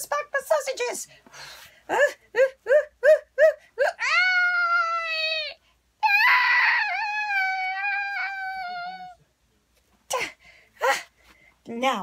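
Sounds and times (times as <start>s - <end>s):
falsetto voice wailing: 1.9s - 9.2s.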